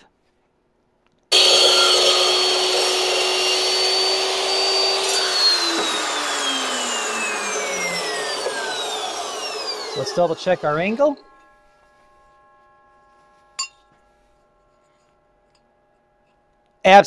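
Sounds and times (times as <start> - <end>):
chop saw running: 1.3 - 14.6.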